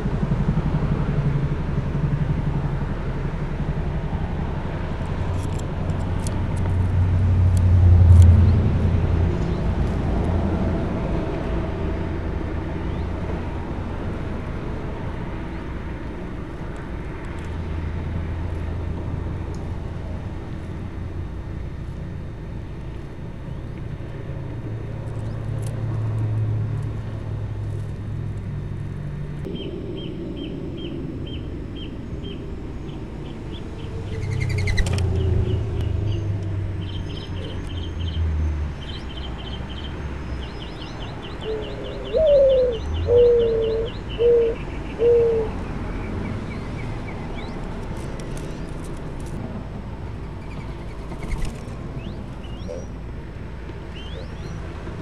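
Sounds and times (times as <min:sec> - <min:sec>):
low outdoor rumble: 0:00.0 - 0:55.0
small bird chirping: 0:29.6 - 0:38.2, 0:50.3 - 0:53.0, 0:53.9 - 0:54.6.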